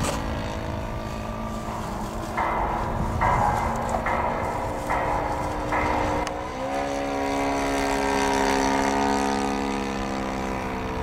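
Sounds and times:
propeller plane engine droning: 0:00.0 - 0:11.0.

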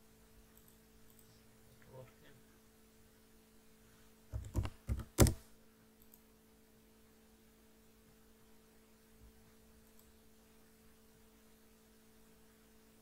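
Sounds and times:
faint electrical hum: 0:00.0 - 0:13.0
computer input clicks: 0:04.3 - 0:05.4.

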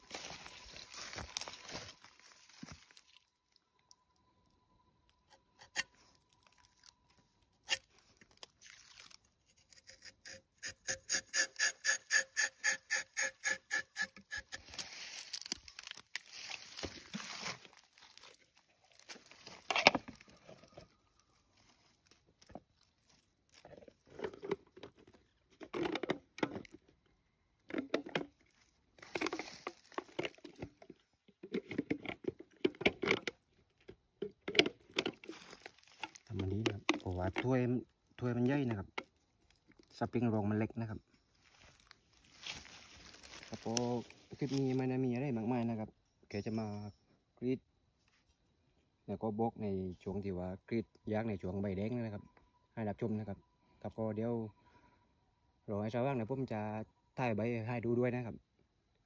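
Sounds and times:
knife scraping tree bark: 0:07.6 - 0:14.9.

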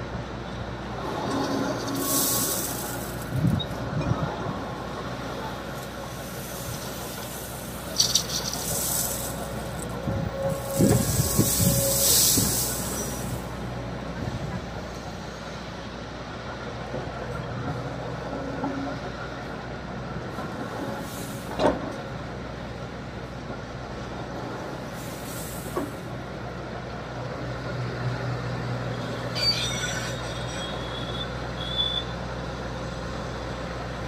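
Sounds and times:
excavator diesel engine running: 0:00.0 - 0:29.8
stone pouring into truck bed: 0:01.8 - 0:03.6, 0:06.6 - 0:09.9
high squeal: 0:10.0 - 0:13.5, 0:28.9 - 0:32.2.

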